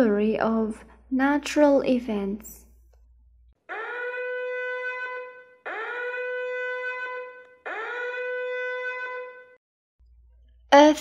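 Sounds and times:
horn-like warning alarm tones: 3.7 - 9.6.

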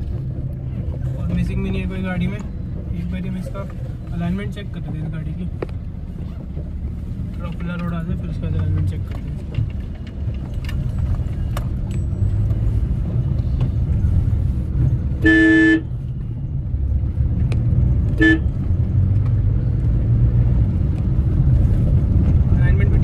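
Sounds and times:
car road and engine rumble: 0.0 - 23.0
car horn honking: 15.2 - 15.9, 18.1 - 18.6.

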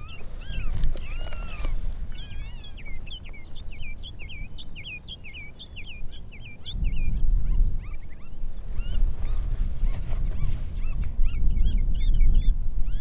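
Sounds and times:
animal chirping calls: 0.0 - 3.4
wind rumbling on microphone: 0.0 - 13.0.

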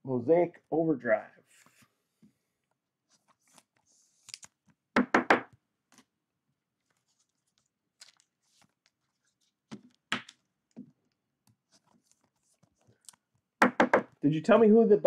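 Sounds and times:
light rustling of cards: 1.5 - 4.8, 6.7 - 13.5.

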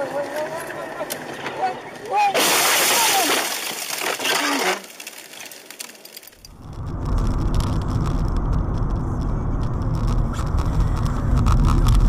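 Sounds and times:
car engine and tyre rumble: 6.3 - 12.0.

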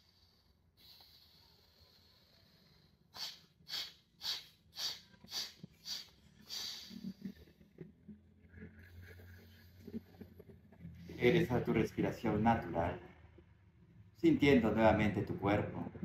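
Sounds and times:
person breathing through nose: 0.0 - 7.7
sharp forced nasal exhalations: 0.0 - 7.7.

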